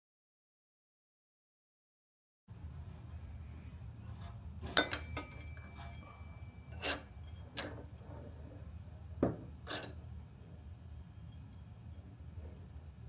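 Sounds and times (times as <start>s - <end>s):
vise scraping clanks: 4.0s - 10.1s
pry bar clinking on vise: 4.6s - 7.9s, 9.2s - 10.0s.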